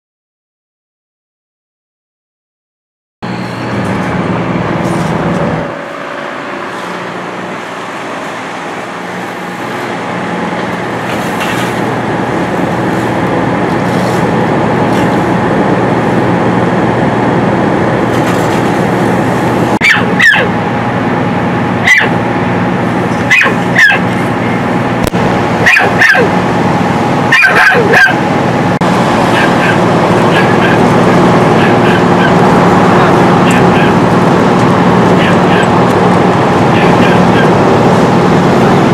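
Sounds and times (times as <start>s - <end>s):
engine idling hum: 3.2s - 38.9s
dogs barking: 19.8s - 20.6s, 21.8s - 22.2s, 23.2s - 24.2s, 25.6s - 26.4s, 27.3s - 28.3s.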